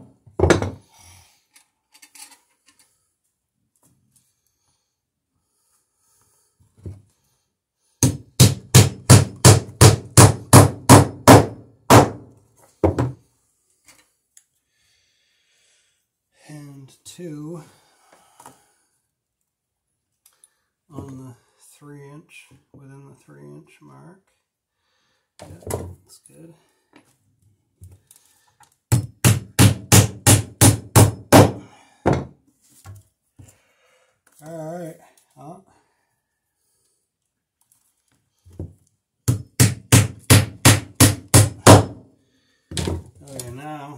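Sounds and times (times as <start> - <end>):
hammer driving a nail into wood: 8.0 - 13.2, 28.9 - 32.3, 39.2 - 42.0.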